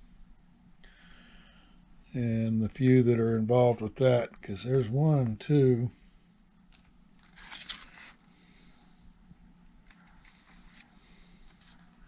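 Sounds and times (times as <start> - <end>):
low steady hum: 0.0 - 12.0
paper sheets rustling: 7.2 - 8.2.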